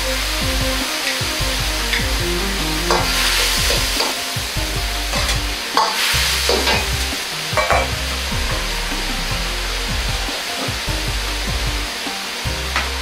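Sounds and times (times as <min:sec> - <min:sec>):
gas burner roaring: 0:00.0 - 0:13.0
sauce sizzling: 0:00.2 - 0:08.3.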